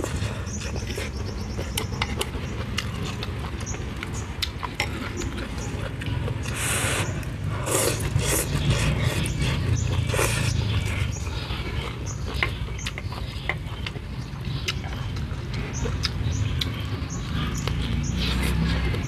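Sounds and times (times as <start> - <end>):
person chewing: 0.0 - 19.0
person slurping noodles: 6.4 - 10.6.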